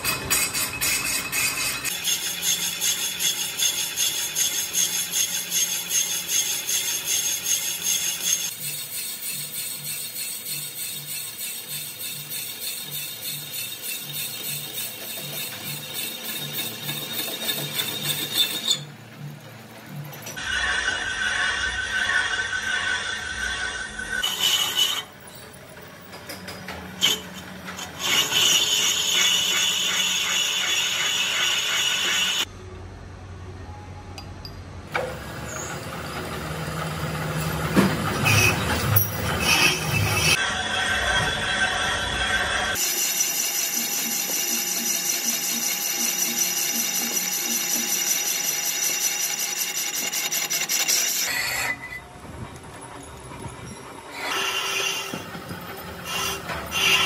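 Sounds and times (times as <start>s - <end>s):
lathe tool rapid chatter: 0.0s - 18.8s, 27.0s - 32.5s, 38.2s - 51.7s, 54.2s - 57.0s
lathe scraping cut with squeal: 0.0s - 19.0s, 20.4s - 25.6s, 27.0s - 32.5s, 35.2s - 52.1s, 53.5s - 57.0s.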